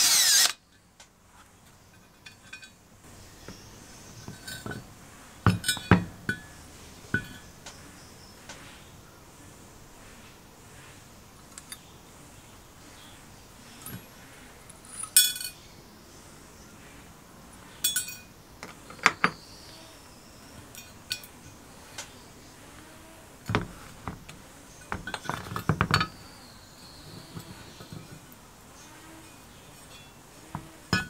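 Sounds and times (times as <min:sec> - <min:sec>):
metal parts clinking and knocking: 0:05.5 - 0:06.5, 0:24.8 - 0:26.2, 0:29.8 - 0:31.0
rattling knocks: 0:24.9 - 0:26.2
bright metallic rings: 0:29.2 - 0:31.0.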